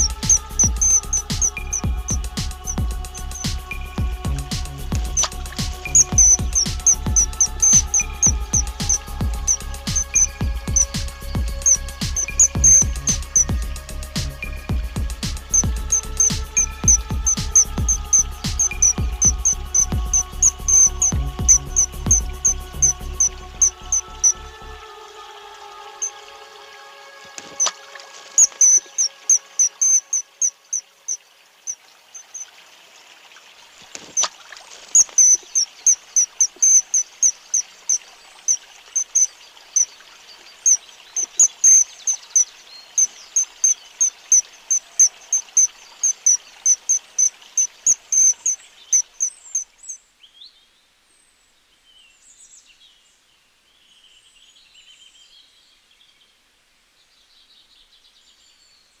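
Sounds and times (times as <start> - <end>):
bird giving sharp squeaky calls: 0.0 - 3.4, 5.9 - 10.9, 11.6 - 13.5, 15.5 - 24.3, 27.4 - 27.8, 28.4 - 30.8, 34.0 - 34.3, 34.9 - 39.9, 40.6 - 42.4, 43.0 - 49.9.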